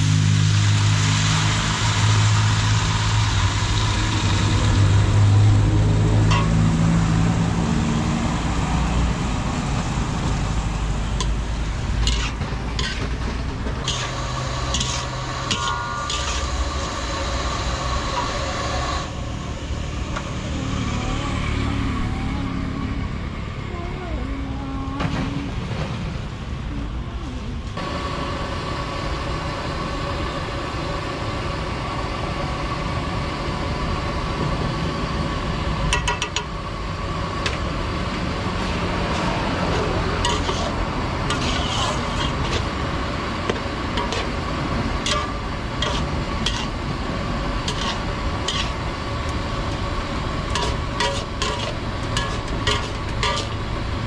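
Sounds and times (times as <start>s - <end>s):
clinks of dishes and cutlery: 15.5s - 16.4s.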